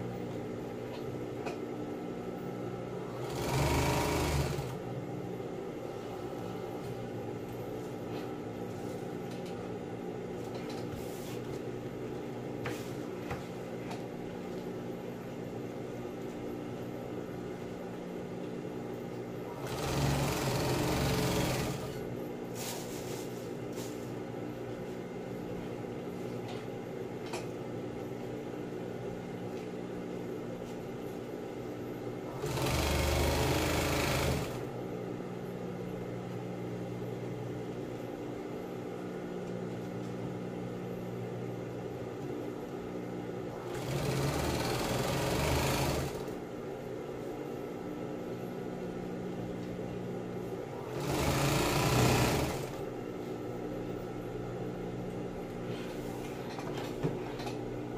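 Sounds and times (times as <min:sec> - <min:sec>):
steady machine hum: 0:00.0 - 0:57.9
sewing machine stitching: 0:03.0 - 0:04.8, 0:19.5 - 0:22.0, 0:32.3 - 0:34.7, 0:43.5 - 0:46.4, 0:50.8 - 0:52.9.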